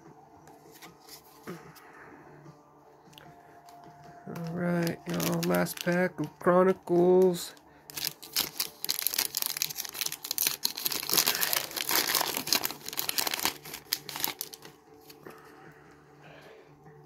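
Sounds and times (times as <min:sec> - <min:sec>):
faint handling of cards: 0:00.4 - 0:02.0, 0:03.1 - 0:15.6
foil wrapper crinkling: 0:04.3 - 0:15.2.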